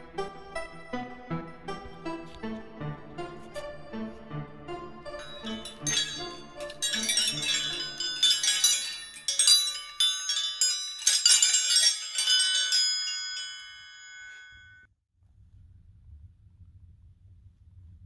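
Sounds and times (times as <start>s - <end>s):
metal wrenches chiming: 5.1s - 14.9s
faint low hum: 15.2s - 18.0s.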